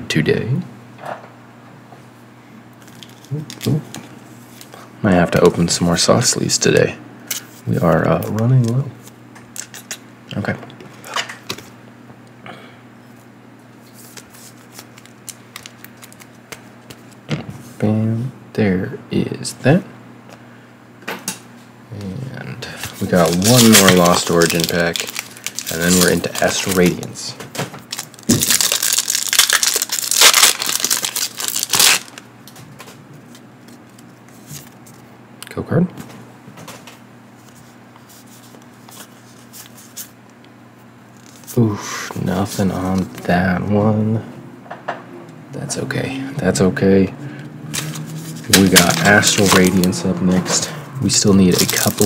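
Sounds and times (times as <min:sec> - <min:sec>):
foil wrapper crinkling and tearing: 0:02.8 - 0:03.7, 0:14.0 - 0:16.4, 0:23.0 - 0:27.2, 0:27.8 - 0:32.3, 0:41.2 - 0:41.6, 0:47.8 - 0:50.0, 0:51.2 - 0:52.0
trading cards flipped by hand: 0:13.8 - 0:17.2.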